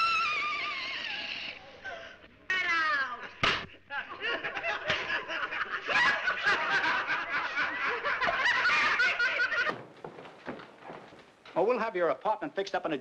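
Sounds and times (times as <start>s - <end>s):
group of people laughing: 3.6s - 9.8s.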